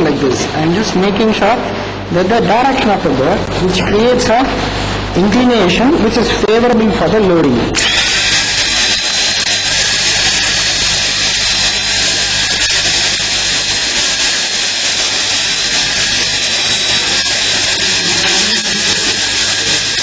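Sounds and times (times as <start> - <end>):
dental drill whining: 7.8 - 20.0.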